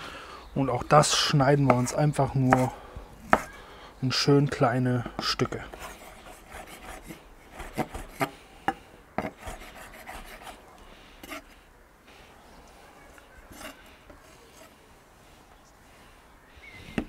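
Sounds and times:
knife chopping on wooden board: 3.3s - 3.5s.

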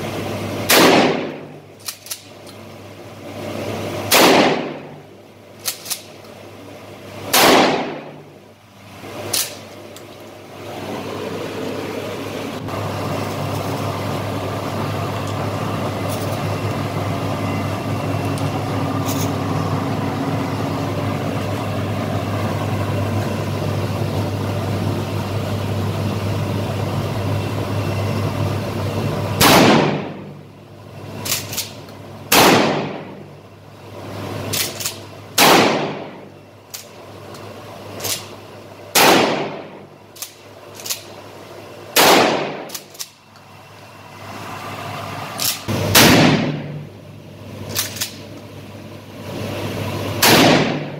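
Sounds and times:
steady low hum: 0.0s - 50.9s
shotgun shots echoing: 0.7s - 1.5s, 4.1s - 5.0s, 7.3s - 8.2s, 29.4s - 30.3s, 32.3s - 33.2s, 35.4s - 36.3s, 38.9s - 39.8s, 42.0s - 42.8s, 45.9s - 46.8s, 50.2s - 50.9s.

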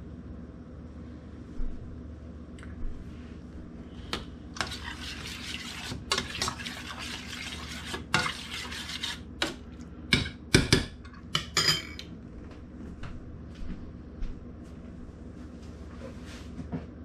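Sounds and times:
metal spoon stirring in saucepan: 4.5s - 9.6s
spoon clanking on metal: 11.0s - 12.1s.

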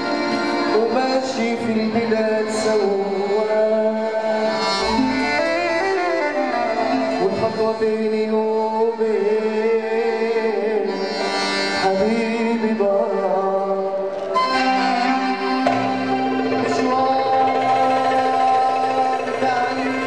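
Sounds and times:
wavering melody line: 14.3s - 20.0s
frame drums: 14.4s - 20.0s
goblet hand drums: 14.4s - 20.0s.

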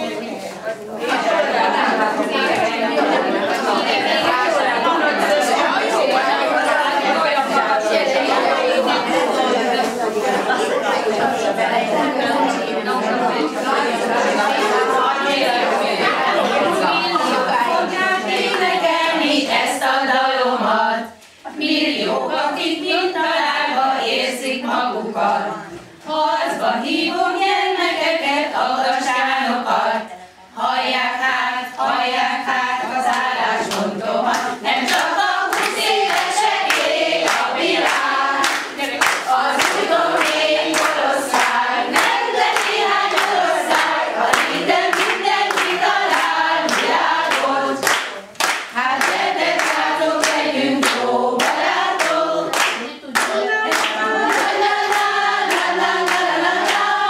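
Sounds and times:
women singing together: 0.0s - 57.0s
rhythmic hand-clapping: 0.9s - 20.0s, 32.9s - 57.0s.

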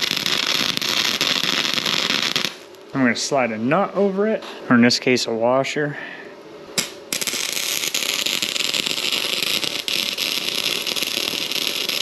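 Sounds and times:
arc welder crackling hiss: 0.0s - 3.4s, 6.8s - 12.0s.

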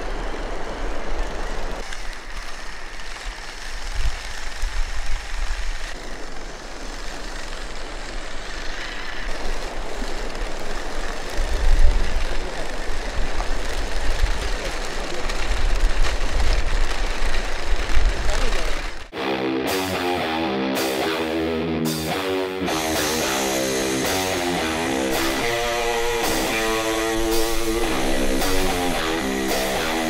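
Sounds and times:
small electric motors running: 0.0s - 19.1s, 22.7s - 30.0s
wind buffeting microphone: 7.8s - 19.1s
plastic tracks clattering: 9.2s - 19.1s.

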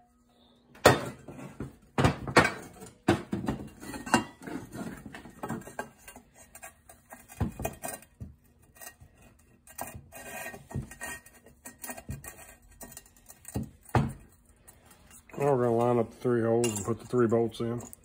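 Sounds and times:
metal tools clicking and clinking: 10.9s - 18.0s.

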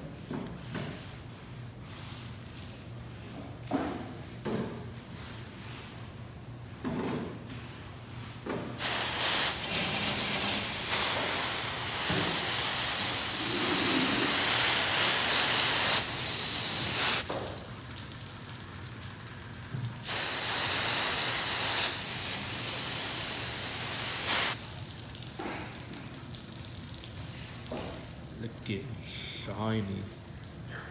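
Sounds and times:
hose water spraying on metal: 8.8s - 18.7s, 19.7s - 24.7s.

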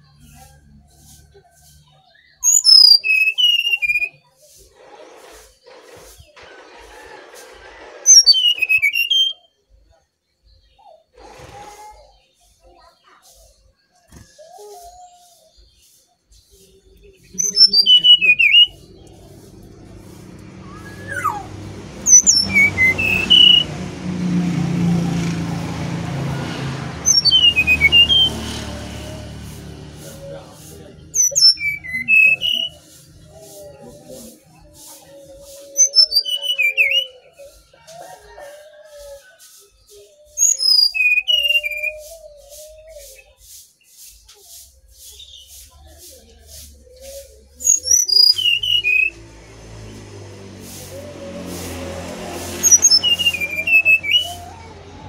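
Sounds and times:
bird whistled song: 2.1s - 4.4s, 8.1s - 9.7s, 14.2s - 23.7s, 27.0s - 28.4s, 31.2s - 33.2s, 35.8s - 37.6s, 40.3s - 43.4s, 47.0s - 49.2s.

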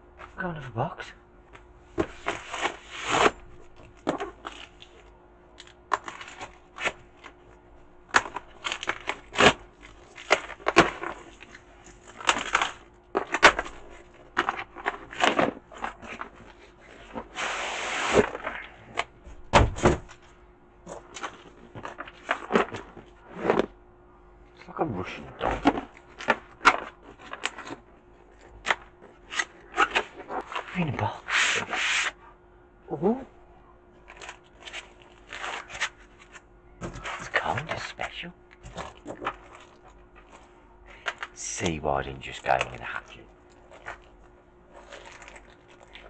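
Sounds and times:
cardboard tearing: 8.2s - 13.8s
cardboard crackling and scraping: 8.2s - 18.7s, 19.8s - 23.8s, 34.0s - 38.0s, 43.6s - 46.0s.

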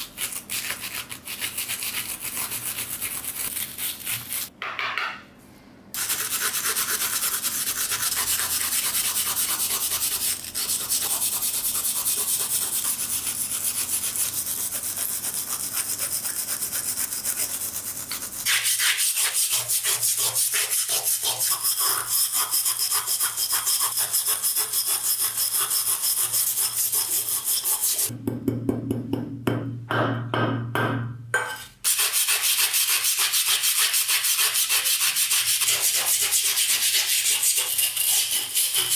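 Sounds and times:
wire brush scrubbing metal: 6.0s - 28.1s, 31.9s - 38.9s.

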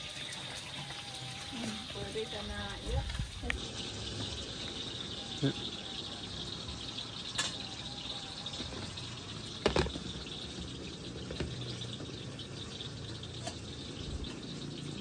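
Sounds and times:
high-pitched insect chirring: 0.0s - 15.0s.

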